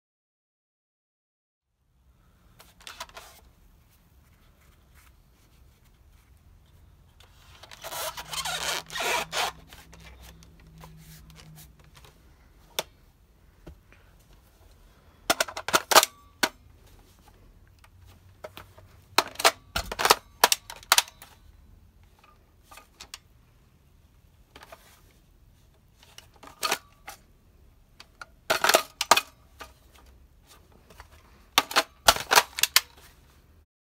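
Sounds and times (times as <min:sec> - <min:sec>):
rustling handling noise: 0:02.2 - 0:33.6
toy blaster plastic clacks: 0:19.2 - 0:21.3, 0:31.6 - 0:32.9.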